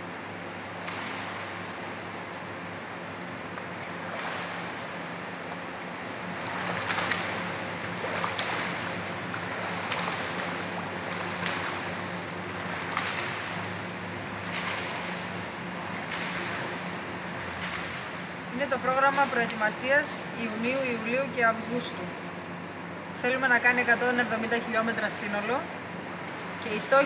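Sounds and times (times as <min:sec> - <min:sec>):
steady low hum: 0:00.0 - 0:27.0
swimmer splashing in pool: 0:03.9 - 0:19.7.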